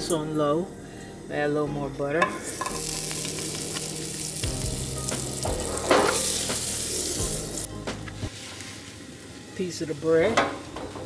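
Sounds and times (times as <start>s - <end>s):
butter sizzling in a frying pan: 2.3s - 10.3s.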